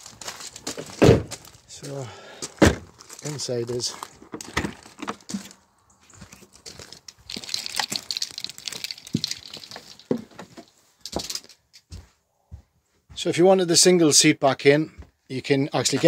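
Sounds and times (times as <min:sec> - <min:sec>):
rustling: 0:02.8 - 0:12.0
footsteps knocking and clicking: 0:06.2 - 0:13.3.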